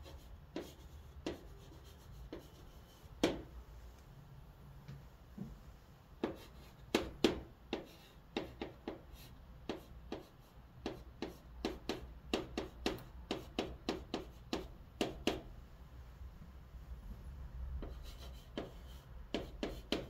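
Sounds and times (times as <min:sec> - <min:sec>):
chalk tapping and scraping: 0:00.0 - 0:03.5, 0:06.2 - 0:15.4, 0:17.8 - 0:20.0.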